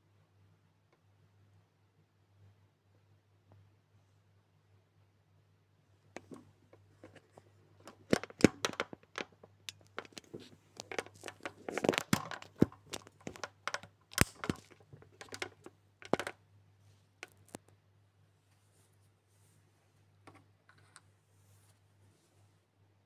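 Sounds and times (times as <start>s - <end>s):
plasticine handling crackling: 6.1s - 16.4s.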